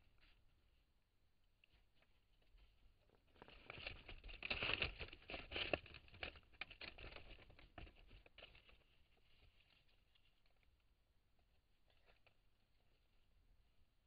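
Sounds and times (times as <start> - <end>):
animals scrabbling in dry leaves: 3.1 - 10.1.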